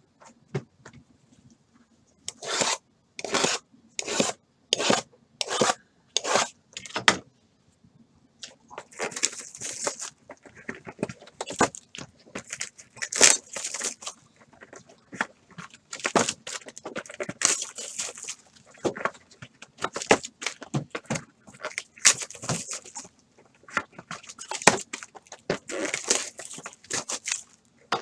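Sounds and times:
shrink wrap crinkling: 0:08.4 - 0:28.0.

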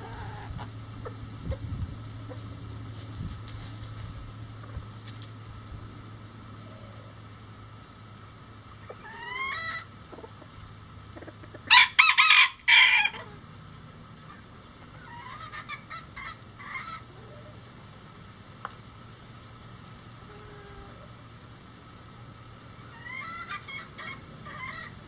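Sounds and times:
chicken calls: 0:00.0 - 0:02.6, 0:08.7 - 0:13.4, 0:14.2 - 0:17.7, 0:22.7 - 0:25.0
rooster crowing: 0:11.7 - 0:13.4.

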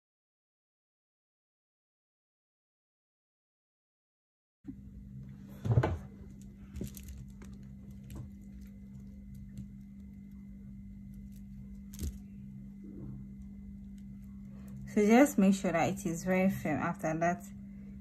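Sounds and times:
steady low hum: 0:04.7 - 0:18.0
bag bumping: 0:05.6 - 0:08.5
beads clicking and rustling: 0:06.2 - 0:10.4, 0:11.0 - 0:12.5.

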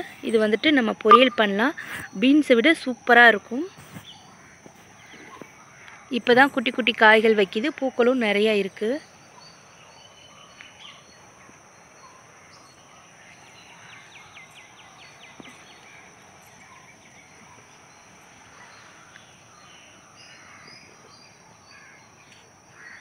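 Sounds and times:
high insect drone: 0:00.0 - 0:23.0
birds calling: 0:08.4 - 0:23.0.

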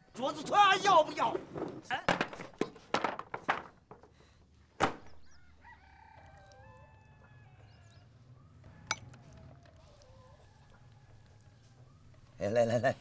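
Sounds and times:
wooden table clattering over: 0:01.5 - 0:04.0
rooster crowing faintly: 0:05.2 - 0:12.4.

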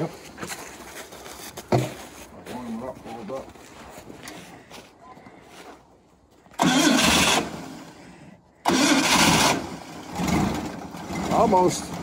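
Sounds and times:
engine cranking: 0:06.5 - 0:12.0.

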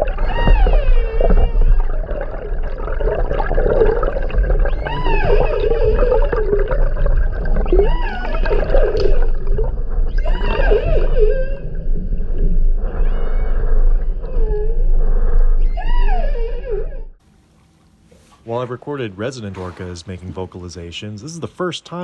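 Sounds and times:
orca calls underwater: 0:00.0 - 0:17.0.

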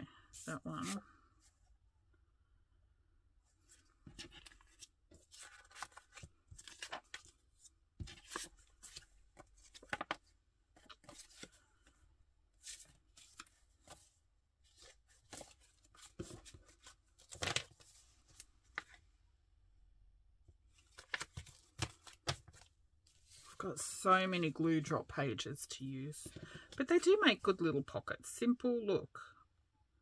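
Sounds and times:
paper sheets rustling: 0:03.7 - 0:07.4, 0:08.0 - 0:10.2, 0:14.7 - 0:19.0, 0:20.8 - 0:23.6.

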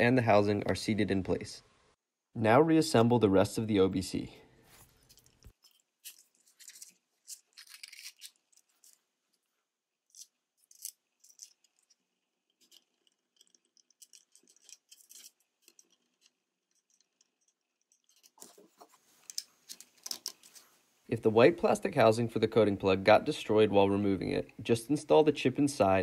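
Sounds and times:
plastic clicks and scrapes: 0:10.1 - 0:20.6.

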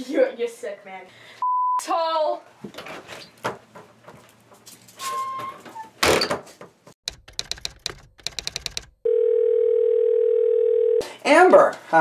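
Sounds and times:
door banging shut: 0:06.0 - 0:06.5
typewriter keys clacking: 0:07.1 - 0:09.0.

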